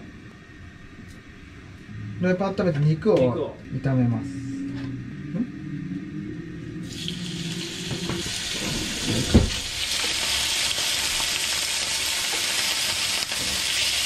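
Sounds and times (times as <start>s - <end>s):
chicken sizzling in hot oil: 6.8s - 14.0s.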